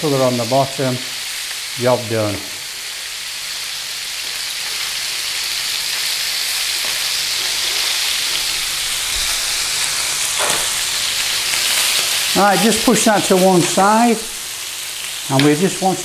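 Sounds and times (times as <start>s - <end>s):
chicken sizzling in hot oil: 0.0s - 16.0s.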